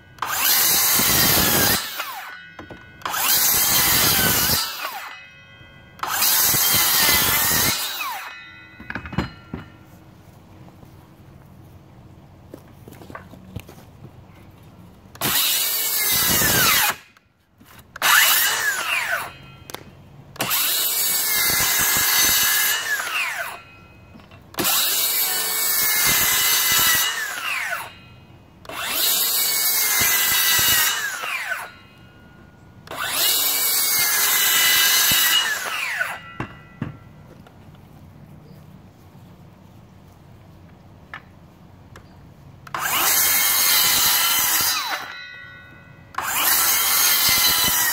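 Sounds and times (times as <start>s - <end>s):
circular saw cutting wood: 0.2s - 5.3s, 6.0s - 8.5s, 15.2s - 17.1s, 18.0s - 19.6s, 20.4s - 23.7s, 24.5s - 32.0s, 32.8s - 36.6s, 42.7s - 45.5s, 46.1s - 47.9s.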